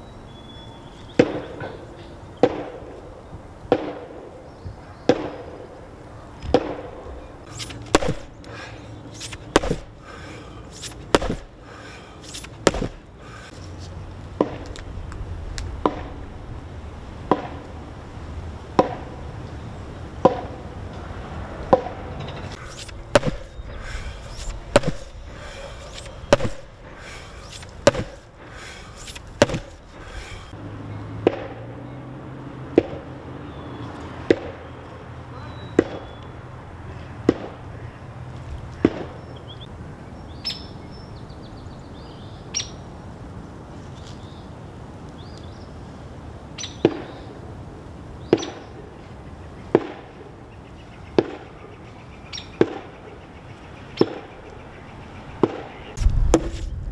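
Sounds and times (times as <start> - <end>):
heavy blows pounding a log: 7.9 - 8.4, 9.2 - 10.2, 10.8 - 11.7, 12.3 - 13.1, 22.7 - 30.5.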